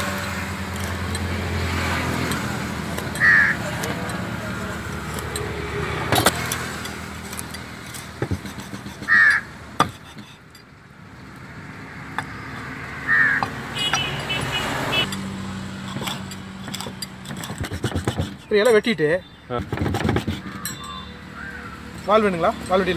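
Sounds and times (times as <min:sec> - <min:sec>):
low hum of traffic: 0:00.0 - 0:22.9
crow cawing: 0:03.2 - 0:03.6, 0:09.1 - 0:09.5, 0:13.0 - 0:13.5, 0:20.5 - 0:21.9.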